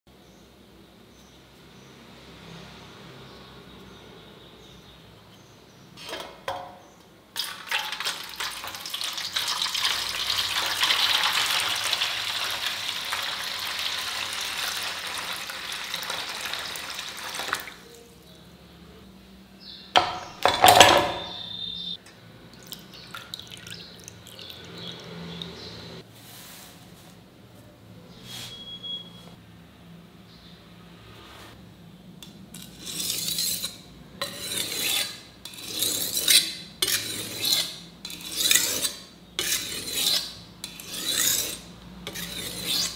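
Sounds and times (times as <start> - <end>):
water pouring and splashing: 7.4 - 17.8, 22.6 - 25.8.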